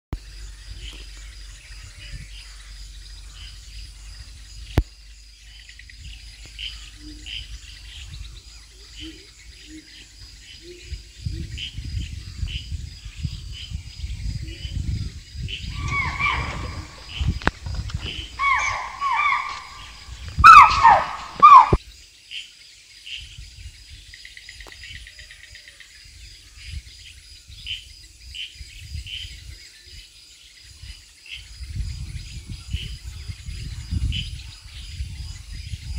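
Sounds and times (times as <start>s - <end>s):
insects chirping: 0.2s - 35.9s
high insect tones: 15.6s - 21.8s
low rustling: 15.7s - 21.7s
loud pitched gliding calls: 15.7s - 21.8s.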